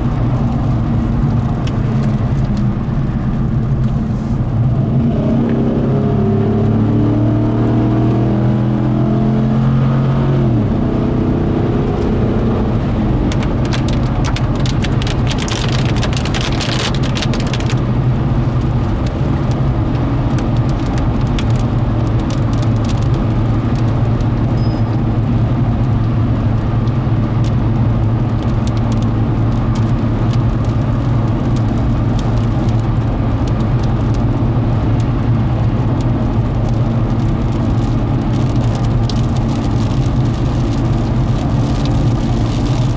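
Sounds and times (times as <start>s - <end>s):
car engine and road noise: 0.0s - 42.9s
raindrops tapping on windshield: 13.0s - 42.9s.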